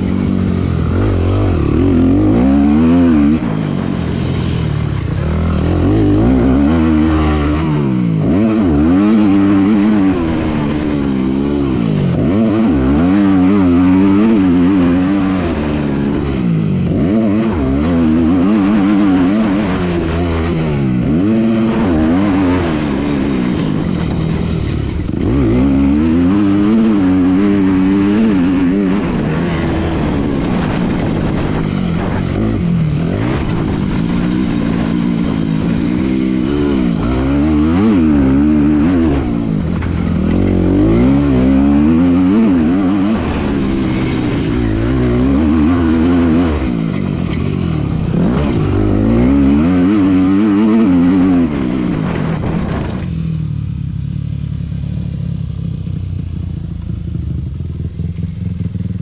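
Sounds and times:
distant motorcycle engine: 0.0 - 59.0
motorcycle engine revving: 0.0 - 59.0.

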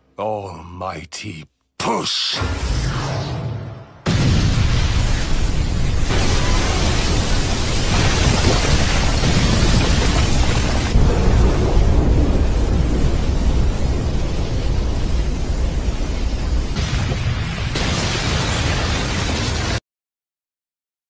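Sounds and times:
shockwave explosion rumble: 4.0 - 16.0.

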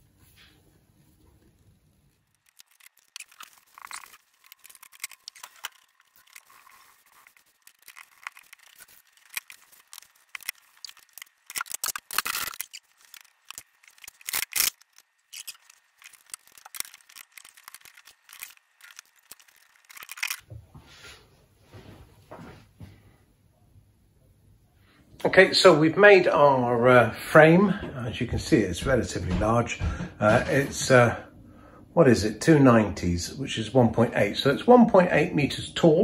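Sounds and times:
plastic pipes scraping and clicking: 2.3 - 20.4
sharp plastic clacks: 7.3 - 20.4.

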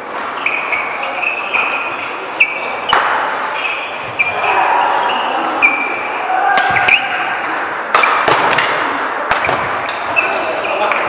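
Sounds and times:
shoes squeaking on court floor: 0.0 - 7.2, 9.4 - 11.0.

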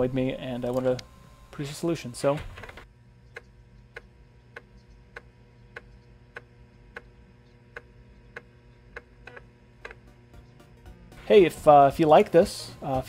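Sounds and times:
floppy drive clicking: 0.5 - 10.6.

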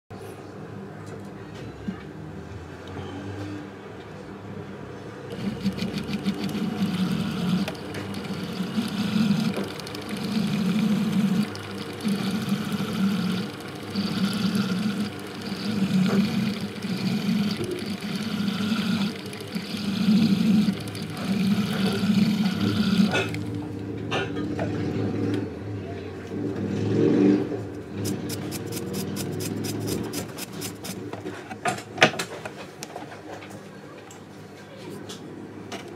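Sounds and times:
power handpiece buzzing on ring: 5.3 - 23.6.

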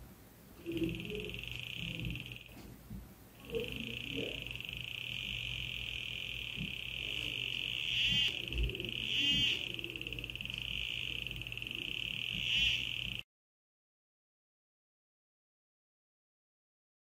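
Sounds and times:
metal detector buzzing alarm tone: 0.6 - 2.6, 3.4 - 13.2.

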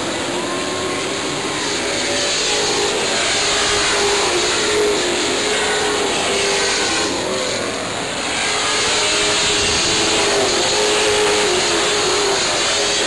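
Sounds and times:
racing car engines: 0.0 - 13.0.

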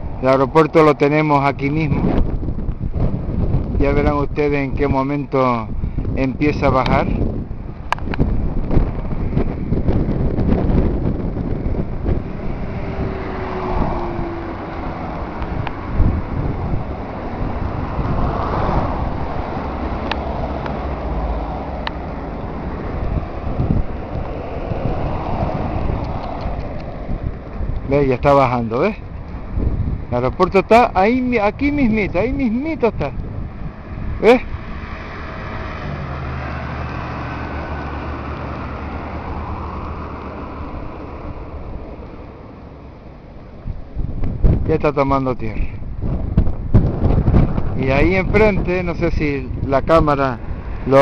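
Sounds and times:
car passing: 0.0 - 44.7, 45.6 - 51.0
road traffic rumble: 0.0 - 51.0
wind buffeting microphone: 0.0 - 51.0
motor scooter passing: 8.2 - 27.8, 33.2 - 43.8.

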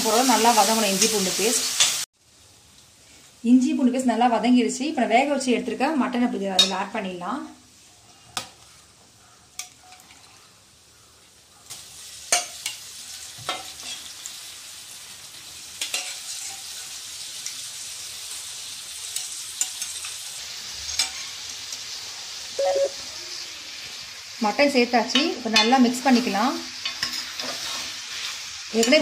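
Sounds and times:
meat sizzling in a pan: 0.0 - 3.0, 10.7 - 29.0.

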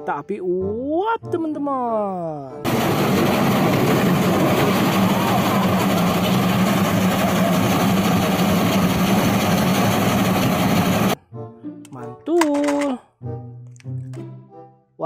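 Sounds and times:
low drone: 2.7 - 11.2
steam locomotive rushing past: 2.7 - 11.2.

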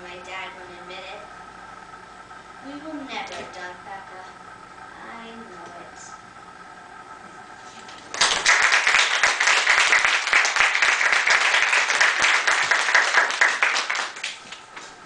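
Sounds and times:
audience applauding: 8.1 - 14.7.

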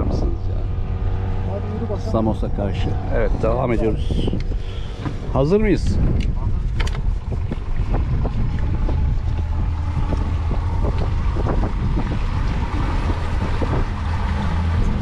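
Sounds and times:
motorboat engine running: 0.0 - 15.0
wind buffeting microphone: 0.0 - 15.0
hull knocking on waves: 4.4 - 15.0.

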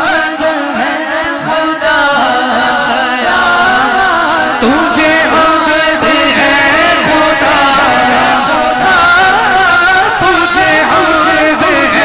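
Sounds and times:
man singing through microphone: 0.0 - 12.0.

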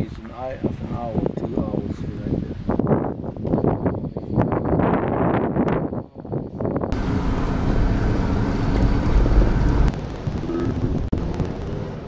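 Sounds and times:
wind buffeting microphone: 0.0 - 12.0
truck running: 6.9 - 12.0.

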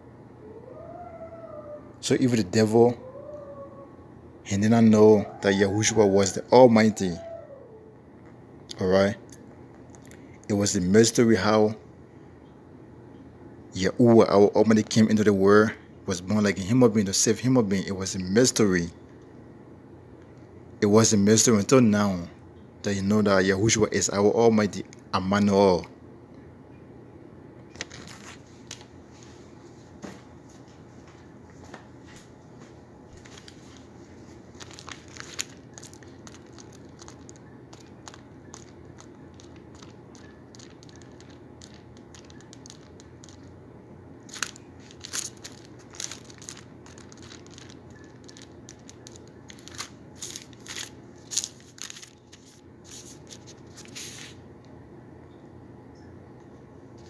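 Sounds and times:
low steady hum: 0.0 - 57.0
paper rustling and crackling: 27.7 - 29.3, 33.1 - 43.5, 44.3 - 54.4.

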